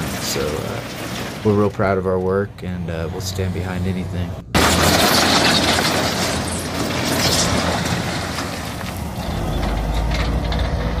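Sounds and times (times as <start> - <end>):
concrete rubble clattering on steel: 0.0 - 1.8, 4.6 - 11.0.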